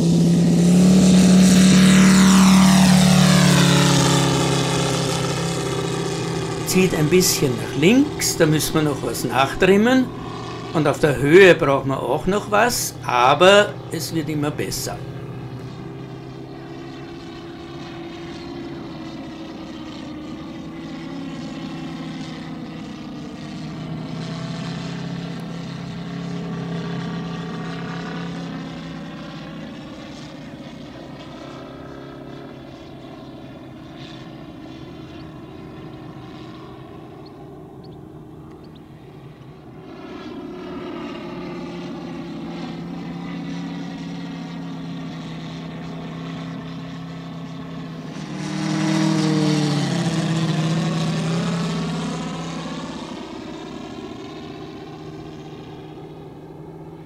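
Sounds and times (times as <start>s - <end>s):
model plane engine running: 0.0s - 57.0s.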